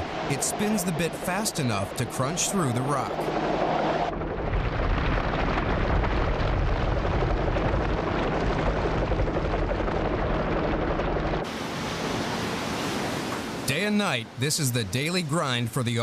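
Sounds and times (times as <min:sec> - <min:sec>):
drilling machinery rumble: 0:00.0 - 0:11.6
low hum: 0:00.0 - 0:12.2.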